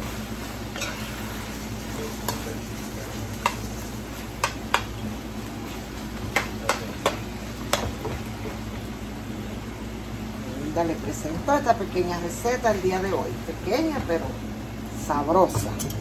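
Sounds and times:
food sizzling in a frying pan: 0.0s - 9.2s
spoon knocking against pan: 4.4s - 4.9s.

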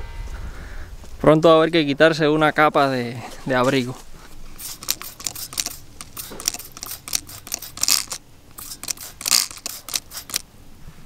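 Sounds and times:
spray bottle spritzing: 4.5s - 10.4s.

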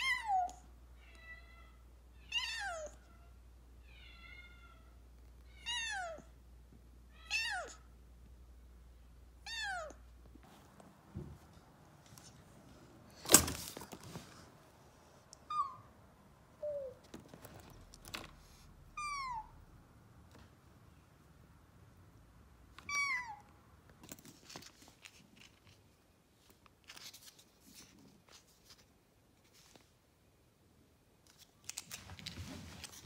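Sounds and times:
rustling: 24.0s - 30.1s, 31.2s - 33.0s.

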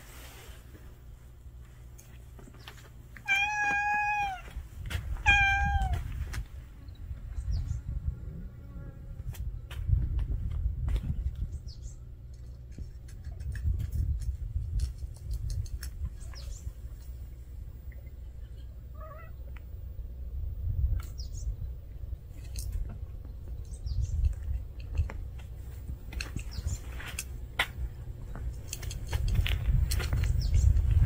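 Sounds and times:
cat meowing: 3.2s - 4.4s, 5.2s - 6.1s, 18.9s - 19.4s
low rumble on microphone: 3.8s - 31.0s.

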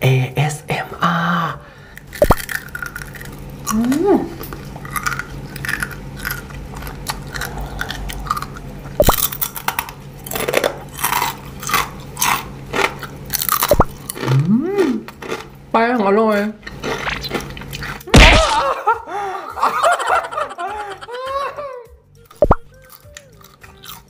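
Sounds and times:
crunching and chewing candy: 1.9s - 15.6s, 16.6s - 18.6s, 22.2s - 24.0s.

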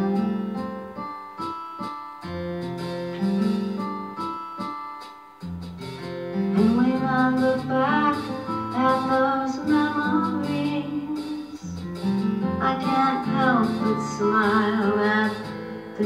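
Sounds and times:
person singing: 6.5s - 16.0s.

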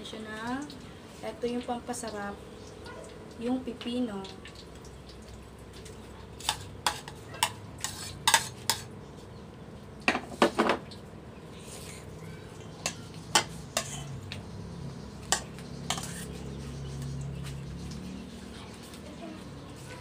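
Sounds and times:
metal spoon clinking on bowls: 6.4s - 8.9s, 12.8s - 14.2s, 15.2s - 16.4s.

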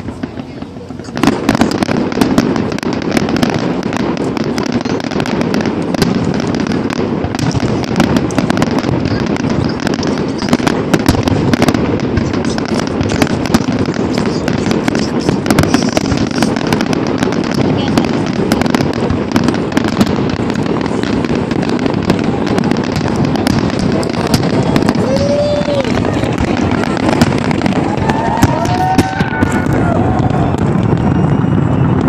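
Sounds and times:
fireworks bangs and crackles: 0.0s - 32.0s
fireworks rumble: 0.0s - 32.0s.

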